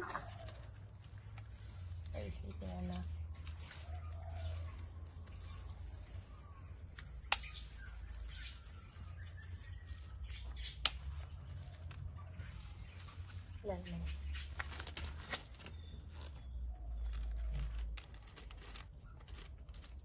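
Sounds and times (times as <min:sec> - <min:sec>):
garden scissors snipping: 0:06.8 - 0:08.6, 0:10.3 - 0:12.0.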